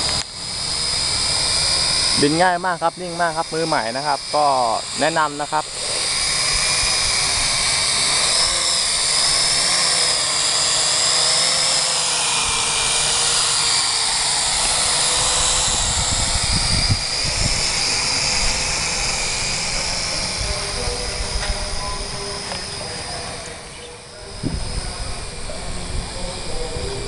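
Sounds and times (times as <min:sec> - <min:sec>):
drone propellers whining: 0:00.0 - 0:27.0
low buffeting noise: 0:11.9 - 0:27.0.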